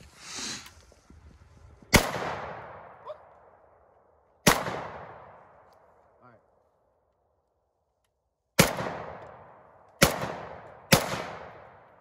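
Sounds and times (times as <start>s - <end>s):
rifle shots with echo: 1.9s - 3.3s, 4.4s - 5.7s, 8.6s - 12.0s.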